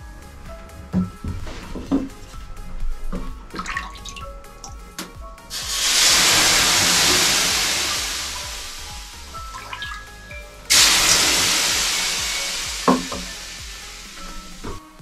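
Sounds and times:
water hissing on hot sauna stones: 5.5s - 15.0s.

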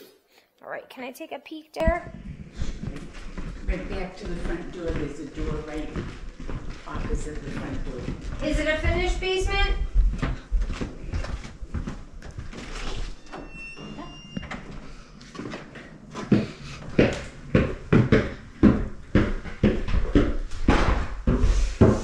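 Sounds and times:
footsteps on hardwood floor: 1.8s - 13.3s, 14.3s - 22.0s
footsteps going down stairs: 1.8s - 22.0s
door opening with squeak: 12.6s - 15.1s.

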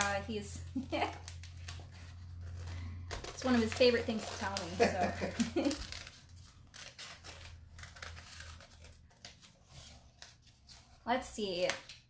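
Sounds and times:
scissors snipping plastic film: 0.0s - 9.5s.

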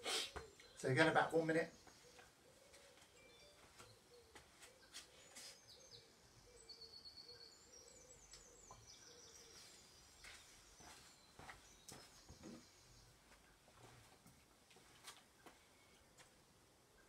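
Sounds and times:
bird cooing: 0.0s - 0.8s, 2.0s - 9.8s
bird chirps: 0.0s - 13.6s.

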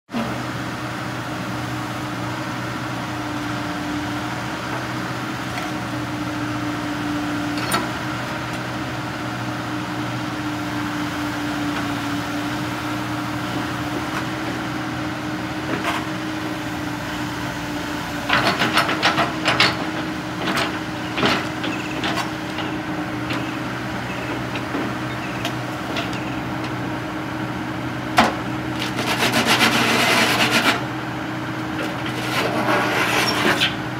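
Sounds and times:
excavator diesel engine running: 0.1s - 33.9s
knocks and clanks: 18.3s - 26.4s.

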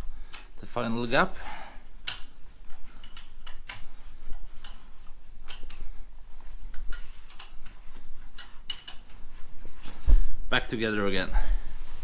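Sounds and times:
low steady hum: 0.0s - 12.0s
metallic clicks of hand tools: 2.0s - 2.4s, 3.0s - 3.9s, 4.6s - 5.8s, 8.4s - 9.1s.

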